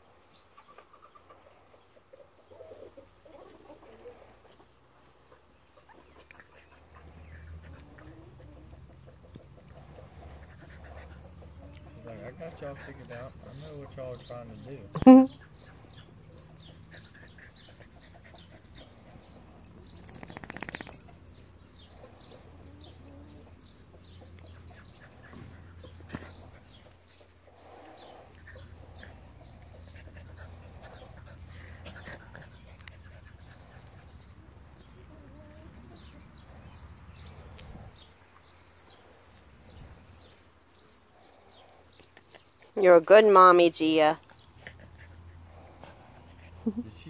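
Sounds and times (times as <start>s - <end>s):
small dog sounds: 5.3s - 42.8s.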